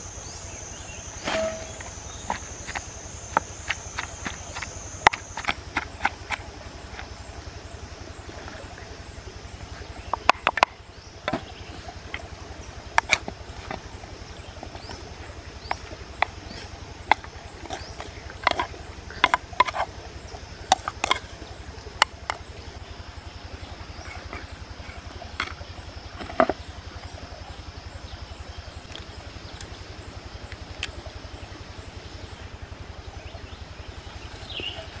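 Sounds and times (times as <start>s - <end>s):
wooden spoon knocking clay mortar: 1.3s - 7.1s, 10.1s - 11.5s, 15.6s - 19.9s.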